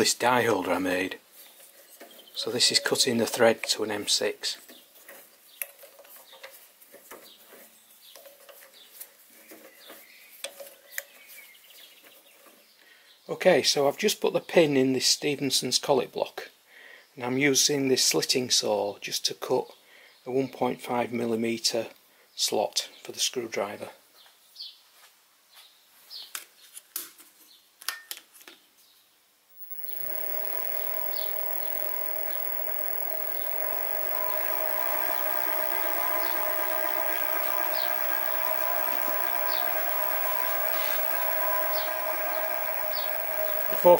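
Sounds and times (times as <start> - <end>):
mill spindle motor whining: 29.6 - 43.9.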